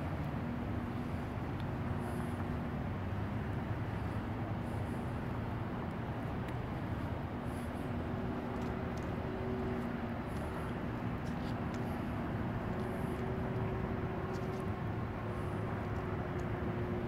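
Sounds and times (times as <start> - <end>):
faint steady hum: 0.0 - 17.0
urban background rumble: 0.0 - 17.0.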